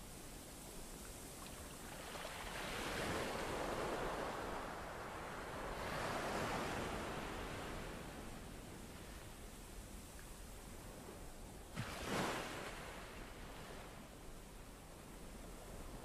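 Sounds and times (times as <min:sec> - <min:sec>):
sea waves washing in: 0:01.4 - 0:09.2, 0:11.7 - 0:14.2.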